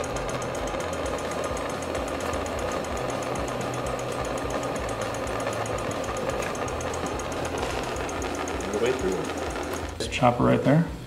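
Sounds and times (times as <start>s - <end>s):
gas torch hissing: 0.0s - 11.0s.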